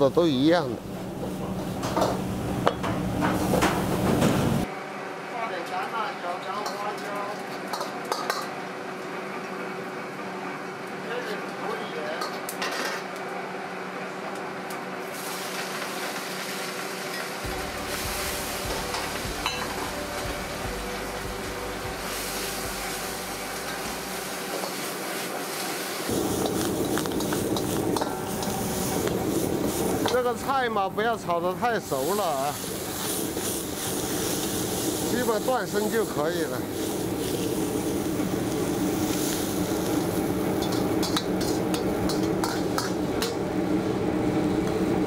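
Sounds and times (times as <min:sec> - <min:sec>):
gas burner roar: 0:00.0 - 0:06.0, 0:06.9 - 0:45.0
light sizzle: 0:05.6 - 0:09.5, 0:14.3 - 0:44.8
greens frying in a wok: 0:06.6 - 0:09.1, 0:10.8 - 0:45.0.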